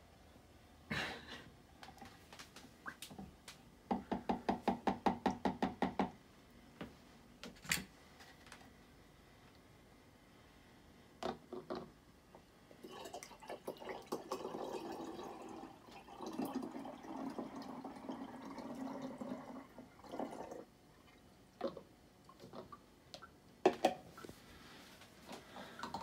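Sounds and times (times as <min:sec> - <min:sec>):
milk pouring through funnel: 0:12.8 - 0:22.7.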